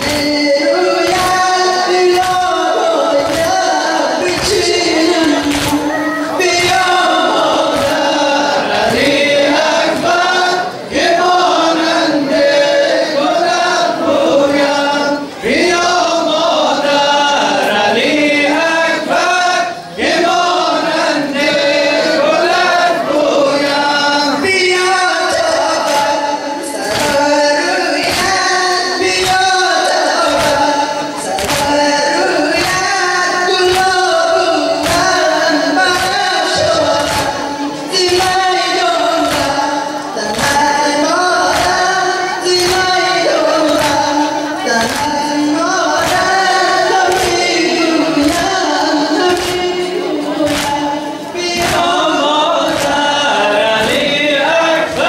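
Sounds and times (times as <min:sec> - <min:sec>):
hands beating chests: 0:00.0 - 0:00.4, 0:01.0 - 0:08.2, 0:26.8 - 0:27.4, 0:28.0 - 0:33.0, 0:33.6 - 0:40.8, 0:41.4 - 0:41.9, 0:42.5 - 0:53.1
man chanting into microphone: 0:00.0 - 0:11.0.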